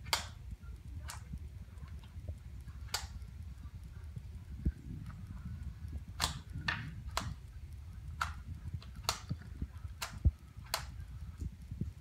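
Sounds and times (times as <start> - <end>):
rubik's cube clicking: 0.0 - 2.2, 5.8 - 11.6.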